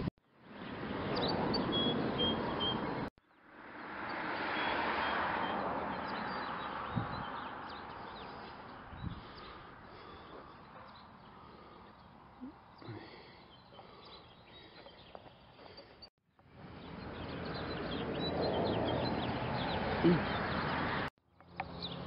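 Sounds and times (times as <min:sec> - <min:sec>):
small birds chirping: 0:00.5 - 0:22.0
wind noise on microphone: 0:06.8 - 0:07.4, 0:08.8 - 0:09.4.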